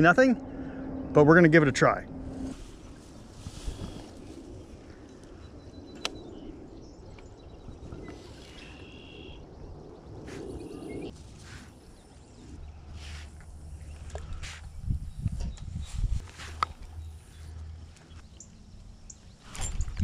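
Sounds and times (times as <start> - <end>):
rustle of grass and wind: 2.3 - 20.0
bird chirps: 5.4 - 11.1.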